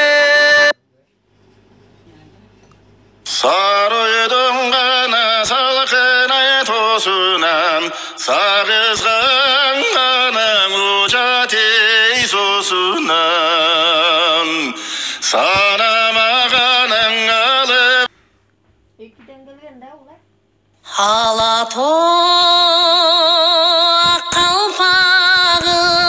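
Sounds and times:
man singing with vibrato: 0.0 - 0.8, 3.2 - 18.1, 20.8 - 26.0.

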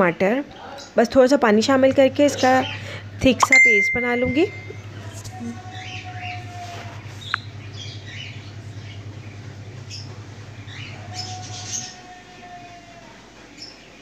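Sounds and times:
birds chirping: 0.5 - 14.0
steady low hum: 1.5 - 11.8.

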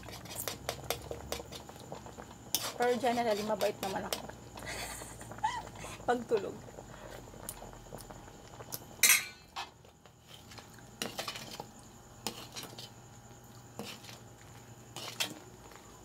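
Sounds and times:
metal utensil clinking on pot: 9.0 - 9.5.

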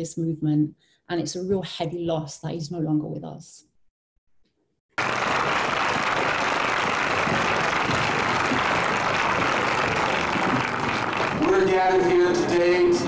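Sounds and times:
crowd applause: 4.9 - 13.0.

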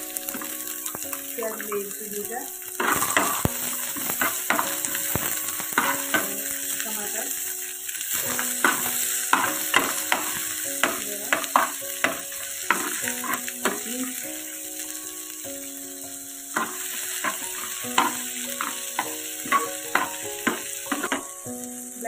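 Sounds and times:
vegetables sizzling in oil: 0.0 - 22.0
ladle scraping and knocking pan: 2.8 - 6.4, 8.2 - 13.9, 16.6 - 21.3.

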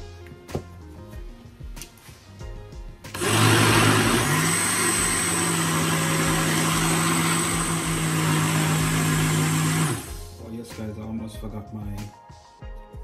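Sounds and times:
blender motor running: 3.1 - 10.2.

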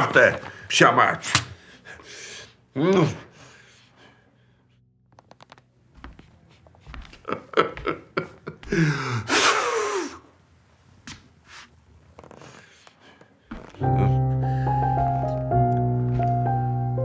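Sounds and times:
man groaning: 13.8 - 14.3.

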